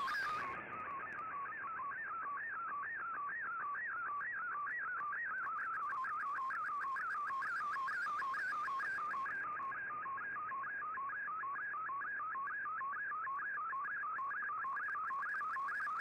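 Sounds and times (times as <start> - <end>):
warbling radio tone: 0.0 - 0.5.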